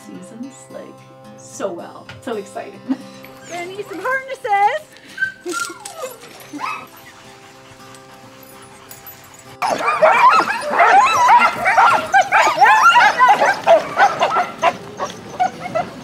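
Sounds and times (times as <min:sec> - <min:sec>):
dogs yipping and howling: 0:05.0 - 0:16.0.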